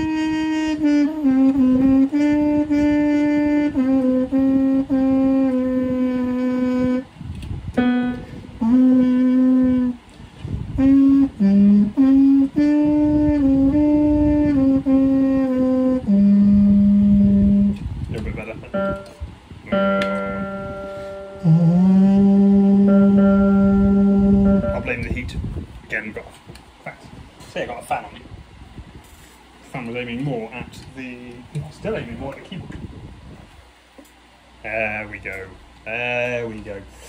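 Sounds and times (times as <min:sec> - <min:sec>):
trumpet playing held notes: 0:00.0 - 0:10.1, 0:10.7 - 0:17.8, 0:18.6 - 0:25.3.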